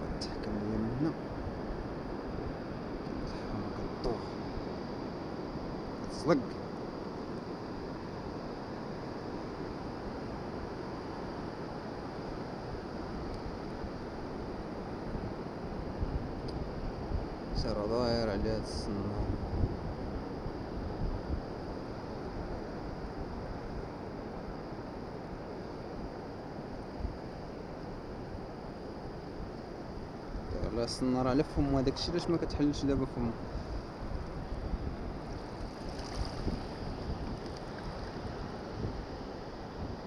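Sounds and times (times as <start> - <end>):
wind on microphone: 0.0 - 40.0
shallow sea water washing: 33.4 - 39.8.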